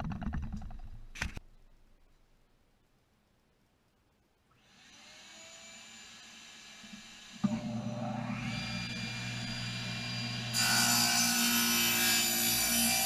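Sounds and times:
table saw motor whine: 4.6 - 13.0.

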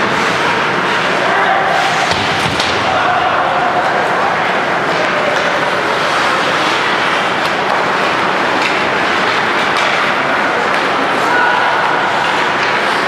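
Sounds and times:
skates scraping ice: 0.0 - 3.0, 3.8 - 13.0
hockey sticks and puck knocking: 1.9 - 3.0, 4.8 - 13.0.

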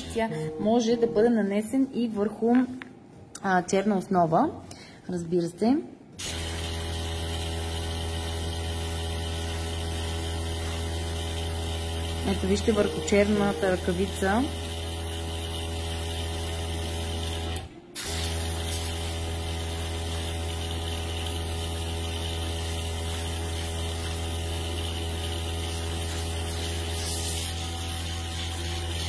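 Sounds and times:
air compressor humming: 6.2 - 29.0
airbrush hissing: 18.0 - 29.0.

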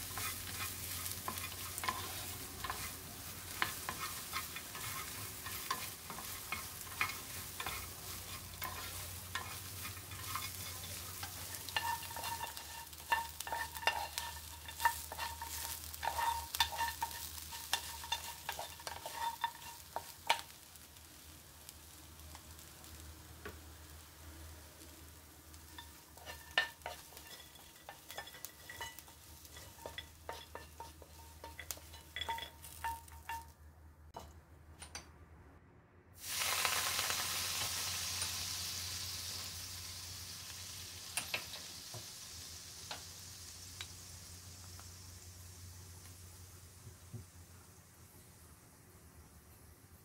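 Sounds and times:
spatula scraping in frying pan: 0.0 - 20.8, 25.6 - 33.5
seasoning sizzling in hot pan: 0.0 - 33.6, 36.2 - 50.0.

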